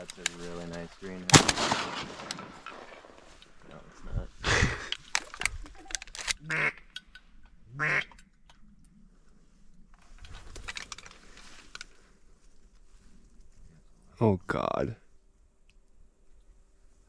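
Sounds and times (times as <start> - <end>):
light rustling and clicks: 0.0 - 1.4, 4.8 - 9.0, 9.7 - 13.8
duck quacks: 6.4 - 6.8, 7.7 - 8.2.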